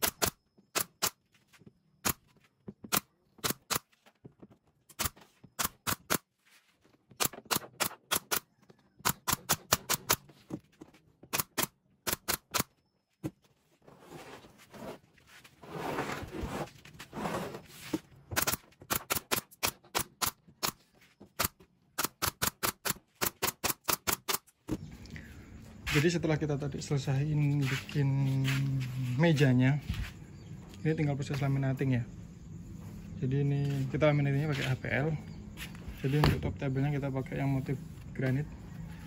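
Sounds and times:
nail gun shots: 0.0 - 1.2, 2.9 - 3.9, 4.9 - 6.3, 7.2 - 8.4, 9.0 - 10.2, 11.3 - 12.7, 18.3 - 20.8, 21.4 - 24.5
wood scraping and shuffling: 1.2 - 5.6, 6.3 - 7.2, 10.2 - 11.3, 13.1 - 18.8.

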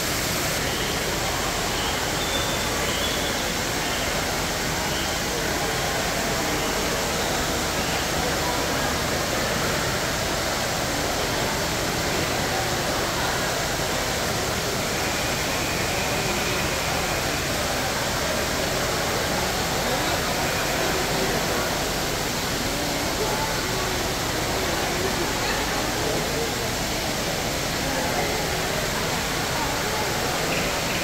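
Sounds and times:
fountain water splashing: 0.0 - 31.0
murmur of crowd voices: 0.0 - 31.0.

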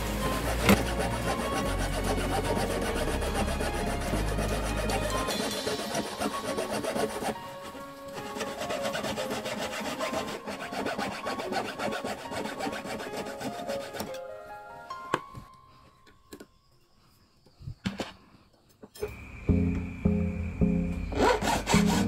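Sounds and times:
saw rasping through metal: 0.0 - 14.2, 21.1 - 22.0.

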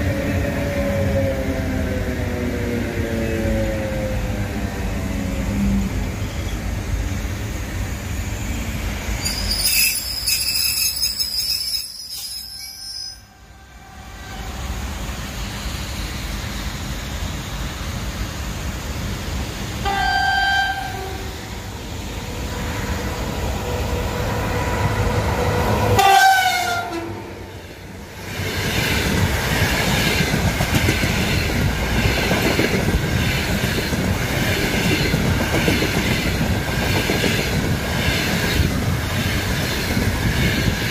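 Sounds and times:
train wheels squealing: 6.2 - 6.7, 9.1 - 13.4
train horn: 12.8 - 14.6, 19.8 - 21.5, 25.8 - 27.4.

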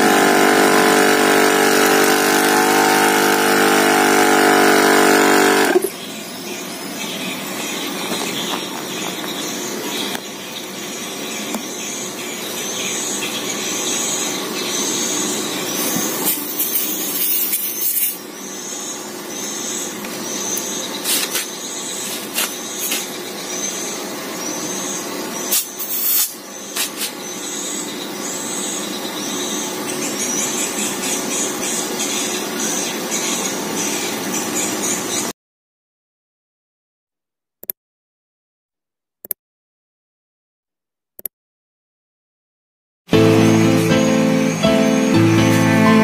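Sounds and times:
air compressor running: 0.0 - 6.0, 13.0 - 28.7.

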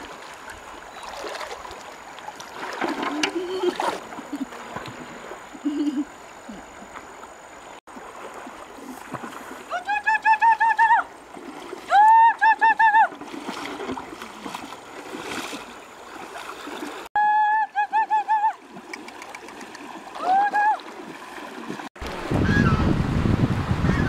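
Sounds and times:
river water rushing: 13.1 - 17.1.

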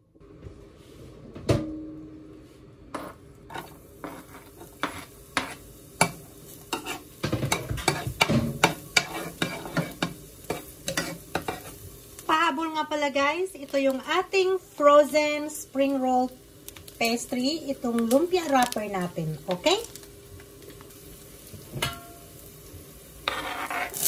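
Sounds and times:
metal spoon scraping a pan: 3.0 - 11.8, 23.2 - 24.0
garlic sizzling in hot oil: 3.5 - 24.0.

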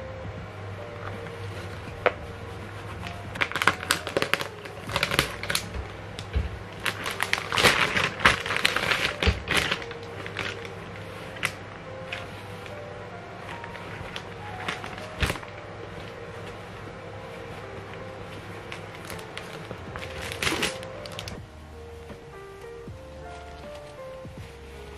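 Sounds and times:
plastic packaging crinkling: 1.0 - 21.5, 22.3 - 24.9.

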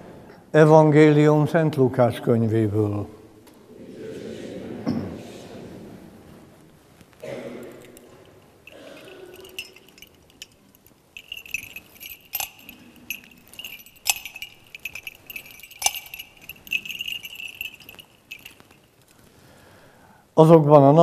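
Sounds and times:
thurible chains jingling: 7.6 - 19.3.

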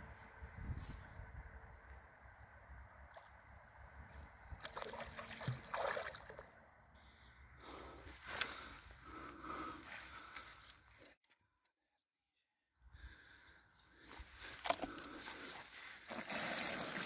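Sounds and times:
fish splashing and thrashing in water: 4.6 - 6.5, 16.0 - 17.0.

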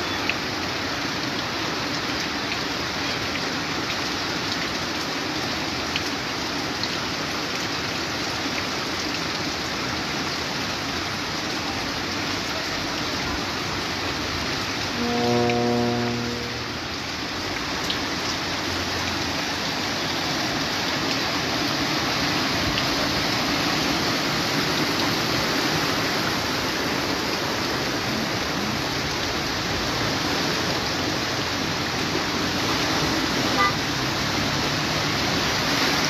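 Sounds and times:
floodwater rushing: 0.3 - 36.0.

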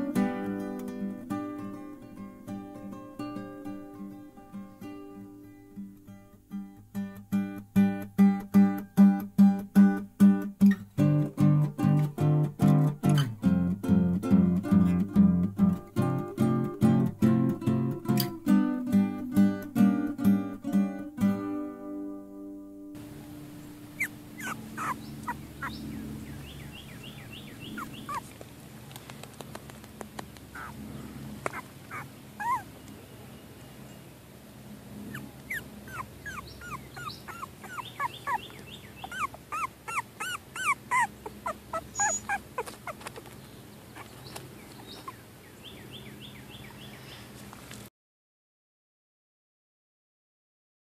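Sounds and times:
puppies whimpering: 23.0 - 28.4, 30.5 - 32.8, 35.1 - 45.2.

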